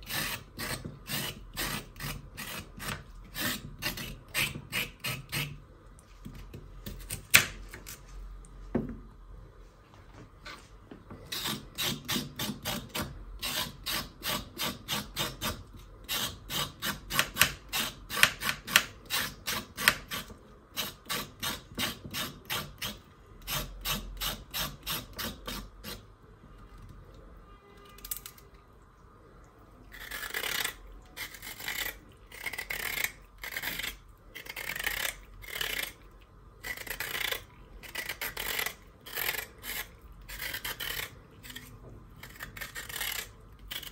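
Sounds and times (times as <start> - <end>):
knife scraping carrot: 0.0 - 5.6, 11.2 - 26.1, 29.9 - 43.9.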